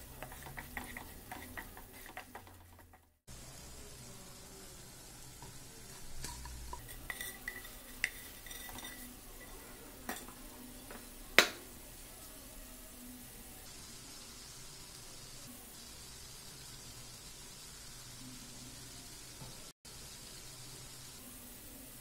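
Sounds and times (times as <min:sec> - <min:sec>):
metal pans clinking and scraping: 0:00.0 - 0:03.2, 0:06.2 - 0:11.0.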